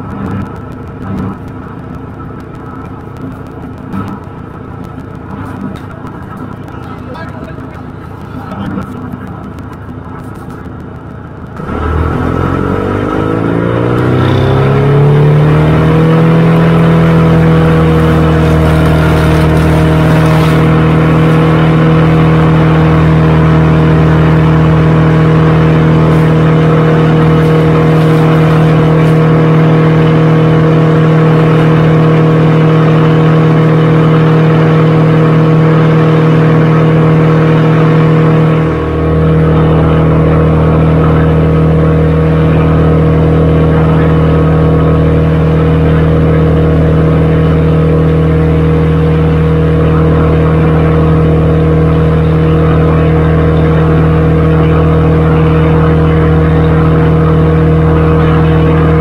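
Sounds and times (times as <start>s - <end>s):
large engine droning: 0.0s - 59.0s.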